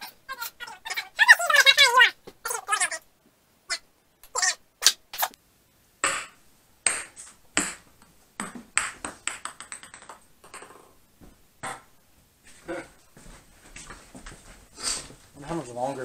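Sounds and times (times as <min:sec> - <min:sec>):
ping-pong ball bouncing on wood floor: 0:06.0 - 0:11.9.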